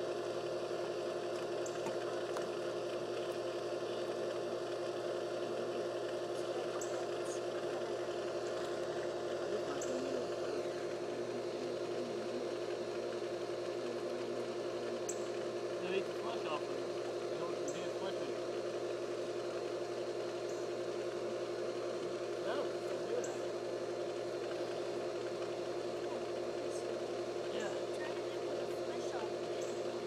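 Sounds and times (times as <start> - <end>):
pool pump motor humming: 0.0 - 30.0.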